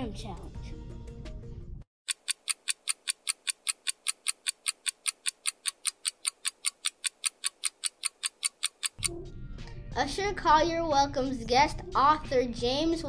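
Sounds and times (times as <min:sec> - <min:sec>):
clock ticking fast: 0:02.1 - 0:09.1.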